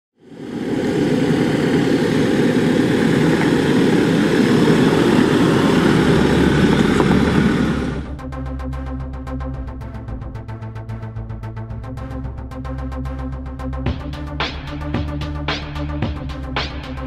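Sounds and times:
vehicle engine rumble: 0.3 - 8.3
rhythmic electronic music: 8.0 - 17.0.

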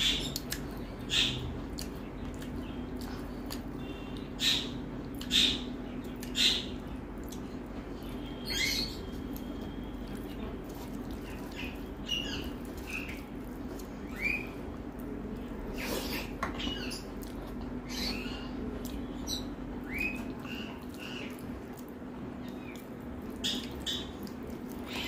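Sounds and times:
eating smacks: 0.0 - 4.4
fingers squelching rice: 8.2 - 16.3.

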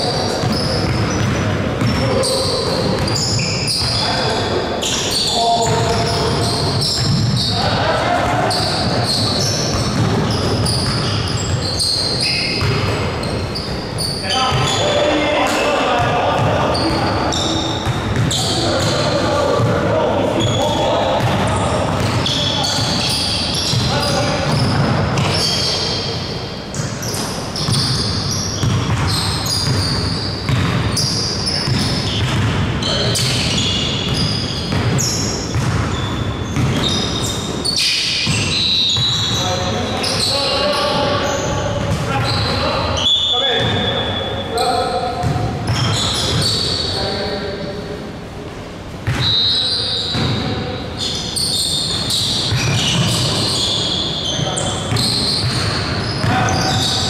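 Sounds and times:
sneaker squeaks: 0.0 - 47.7, 49.0 - 57.0
basketball bouncing: 0.3 - 2.1, 5.6 - 7.5, 8.2 - 13.7, 16.0 - 19.8, 21.2 - 25.4, 26.8 - 32.6, 33.2 - 37.3, 41.8 - 42.6, 45.2 - 46.6, 50.1 - 50.5, 54.9 - 57.0.

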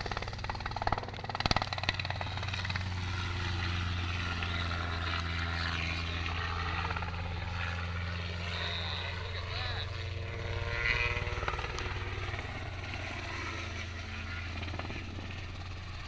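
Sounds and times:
rapid rotor chop: 0.0 - 4.7
helicopter engine drone: 0.0 - 16.0.

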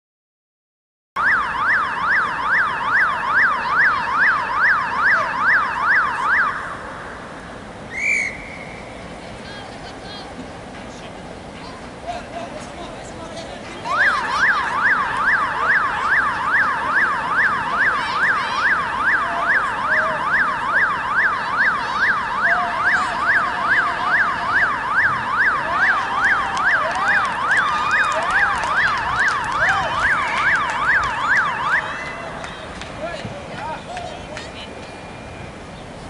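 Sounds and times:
electronic siren yelping: 1.2 - 7.3, 13.9 - 32.2.

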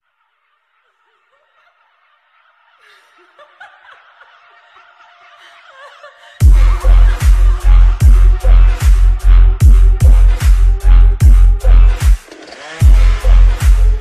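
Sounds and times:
snickering laugh sample: 0.2 - 12.0
dubstep bass drop: 6.4 - 14.0.

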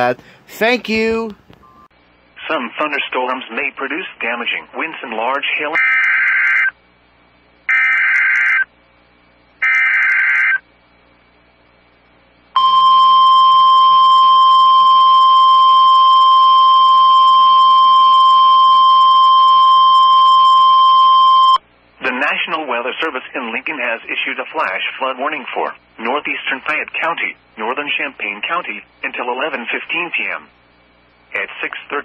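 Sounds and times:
steady warning alarm tone: 12.6 - 21.6.

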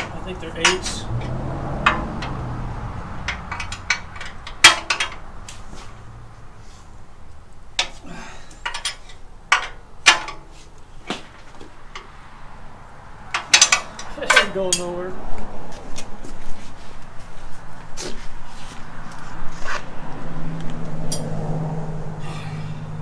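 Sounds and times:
tools and bolts clanking on steel: 0.0 - 2.5, 3.2 - 5.9, 7.8 - 12.2, 13.3 - 15.0, 21.0 - 21.3.

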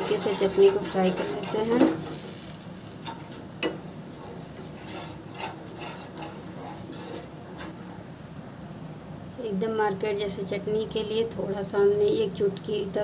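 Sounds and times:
spatula scraping a pan: 0.0 - 8.0.

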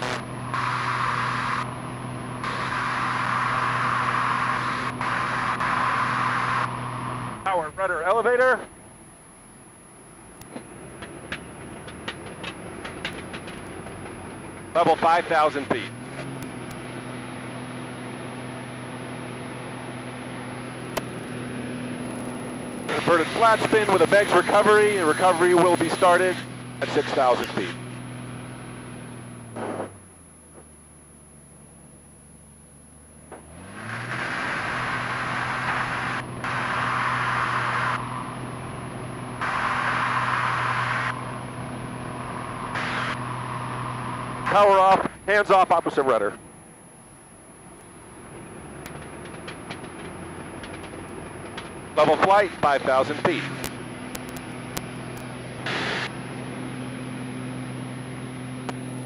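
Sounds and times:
plane engine drone: 0.0 - 59.0
rushing air: 39.2 - 44.6.

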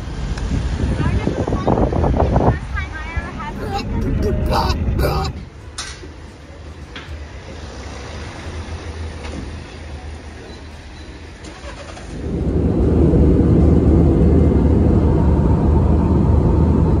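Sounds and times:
vehicle engine and road rumble: 4.8 - 17.0.

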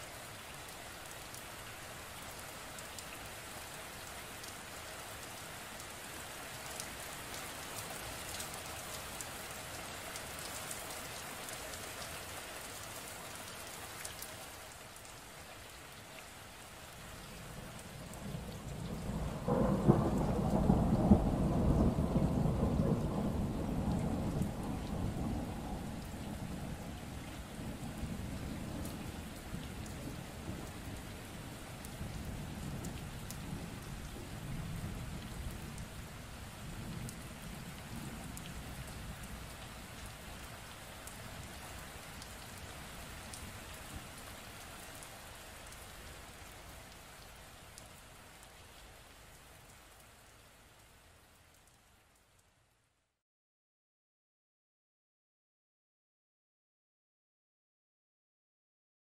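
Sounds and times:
steady rain: 0.0 - 53.2
thunder clap and rumble: 18.1 - 31.1.

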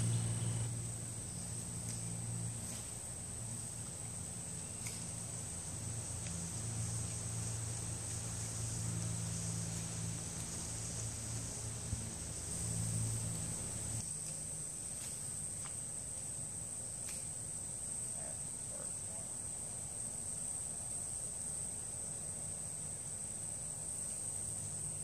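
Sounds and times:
low hum: 0.0 - 14.0
high-pitched insect chorus: 0.0 - 25.0.

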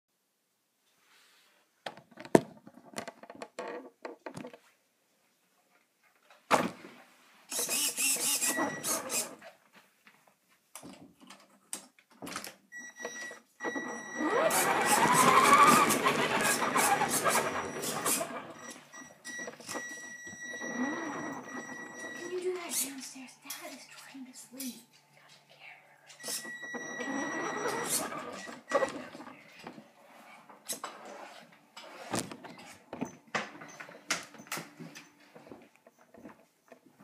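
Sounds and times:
electric motor revving: 14.3 - 18.3.

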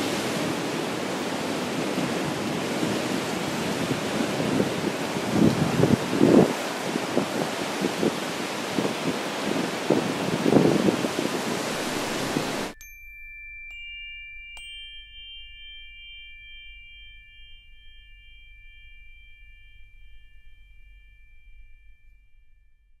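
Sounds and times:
surf rushing: 0.0 - 12.8
wind on microphone: 0.0 - 12.8
metal chimes ringing: 11.6 - 23.0.

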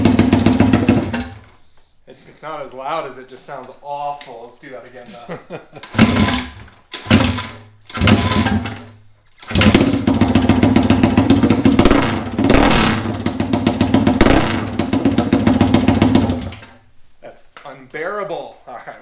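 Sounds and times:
loud motorcycle engine revving: 0.0 - 1.4, 6.0 - 8.8, 9.4 - 16.6.

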